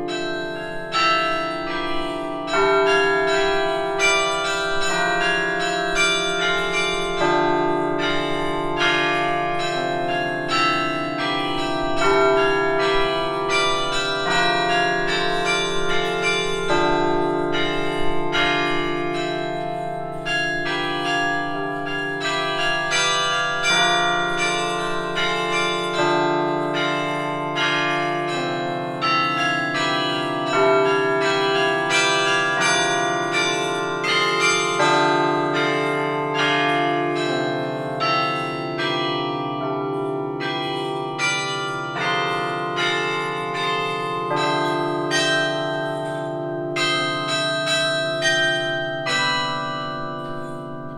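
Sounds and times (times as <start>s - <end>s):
deep bass bells ringing: 0.0s - 39.3s
carillon bells melody: 0.0s - 50.9s.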